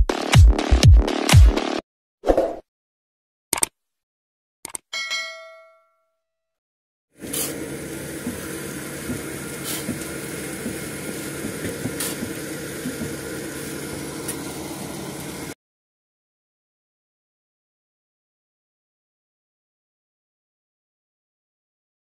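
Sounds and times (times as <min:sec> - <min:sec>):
sharp clicks: 0:03.5 - 0:03.7, 0:04.6 - 0:04.9
bell-like notification ding: 0:05.0 - 0:06.1
heavy machinery running: 0:07.2 - 0:15.6.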